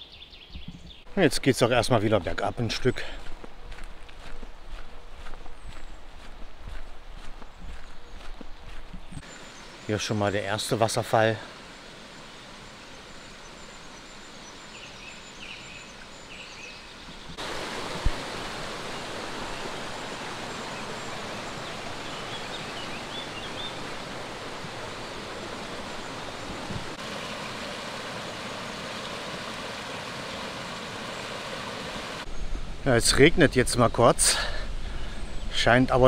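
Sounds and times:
waterfall rushing: 0:17.4 - 0:32.3.

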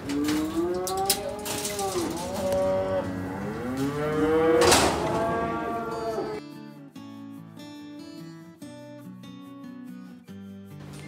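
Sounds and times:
livestock calling: 0:00.2 - 0:06.4
acoustic guitar music: 0:01.2 - 0:11.0.

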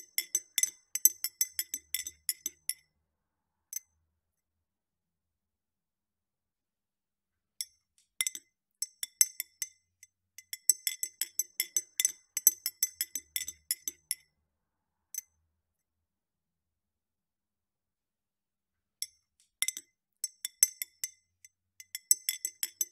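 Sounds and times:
teaspoon clinking in glass: 0:00.0 - 0:02.8.

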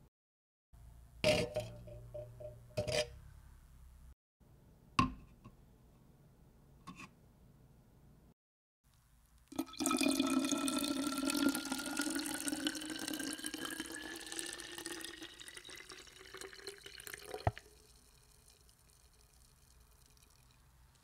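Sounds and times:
water filling a vessel: 0:09.5 - 0:21.0.

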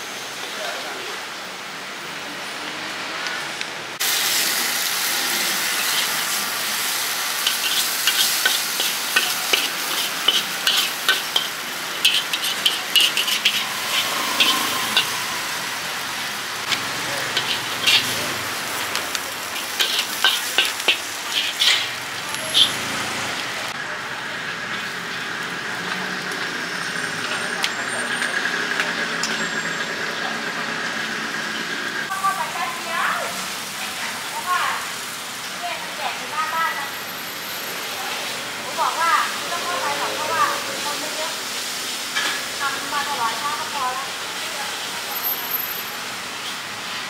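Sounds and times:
food sizzling in a pan: 0:04.0 - 0:47.0
spatula scraping a pan: 0:07.4 - 0:15.6, 0:16.6 - 0:23.0.

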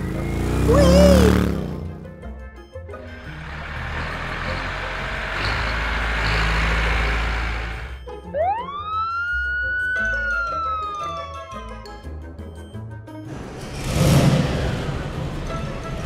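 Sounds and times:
background music: 0:00.0 - 0:16.0
siren wail: 0:00.4 - 0:01.5, 0:08.2 - 0:12.1.

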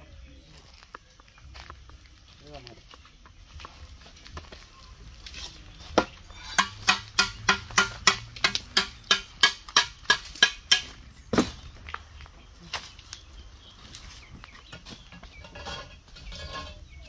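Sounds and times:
metal tool tapping concrete block: 0:06.0 - 0:10.9.

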